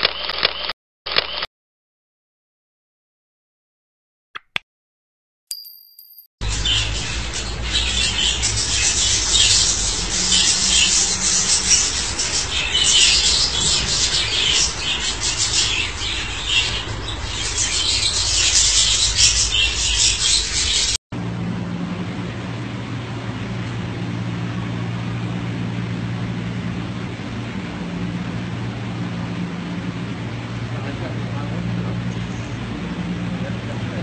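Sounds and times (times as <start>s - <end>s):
steady low hum: 6.4s - 34.0s
budgerigar chattering and warbling: 6.5s - 20.9s.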